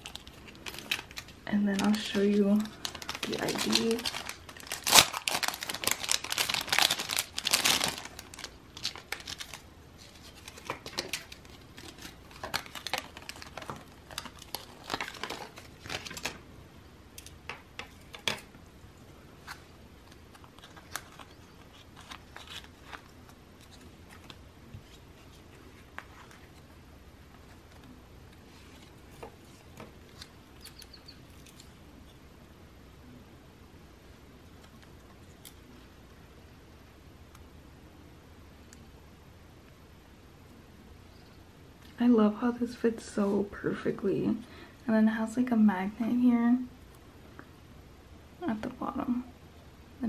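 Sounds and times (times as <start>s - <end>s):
plastic packaging crinkling: 0.0s - 16.4s, 19.4s - 31.8s.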